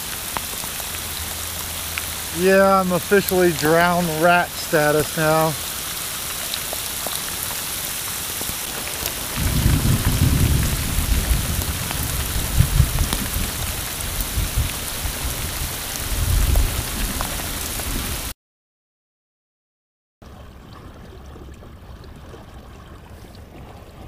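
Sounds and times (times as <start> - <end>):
heavy rain on lake and boat: 0.0 - 18.3.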